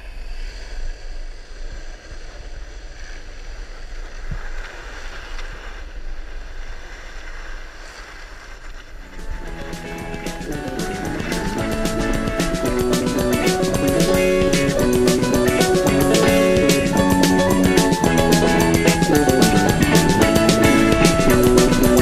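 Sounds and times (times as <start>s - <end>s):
music: 9.2s - 22.0s.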